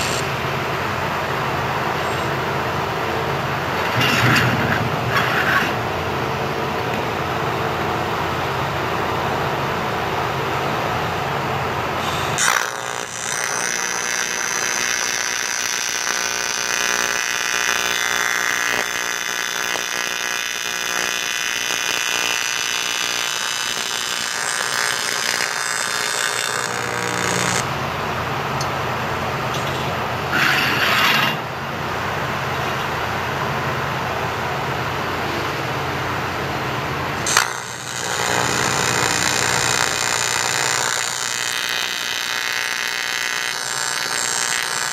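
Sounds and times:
welding arc hiss: 0.0s - 0.4s, 12.0s - 27.8s, 37.2s - 44.9s
welding arc buzzing: 0.0s - 0.6s, 11.9s - 28.7s, 37.1s - 44.9s.

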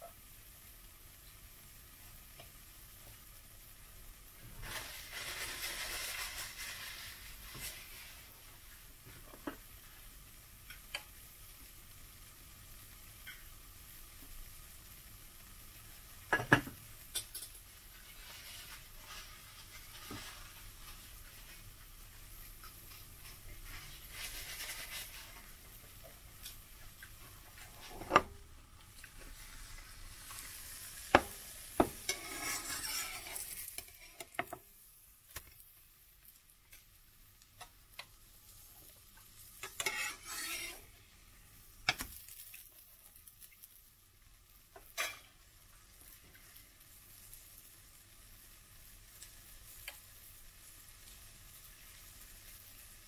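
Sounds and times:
pancake sizzling in a pan: 0.0s - 53.0s
plastic spatula scraping a pan: 4.6s - 8.3s, 18.1s - 21.5s, 23.2s - 25.7s, 27.5s - 28.4s, 31.2s - 34.5s, 39.6s - 40.9s.

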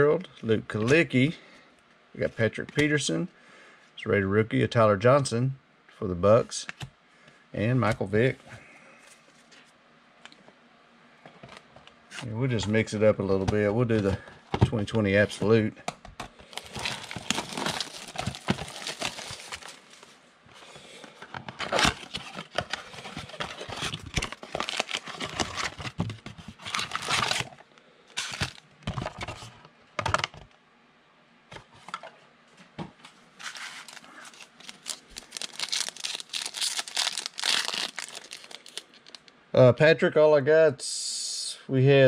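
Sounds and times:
card pack wrappers tearing: 16.4s - 20.1s, 21.6s - 27.6s, 28.2s - 28.6s, 33.4s - 39.3s.

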